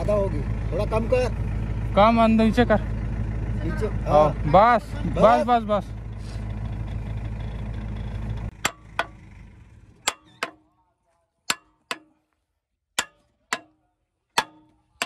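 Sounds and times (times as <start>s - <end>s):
engine drone: 0.0s - 10.6s
hammer striking steel pin: 8.5s - 9.2s, 10.0s - 10.7s, 11.5s - 12.2s, 13.0s - 15.0s.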